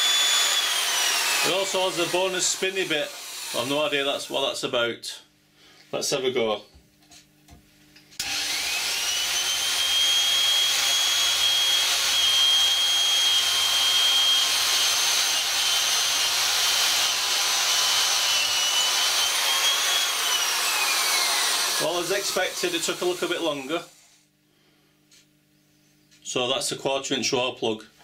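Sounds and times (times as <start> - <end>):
electric drill boring through wood: 0.0 - 4.4, 8.2 - 24.0.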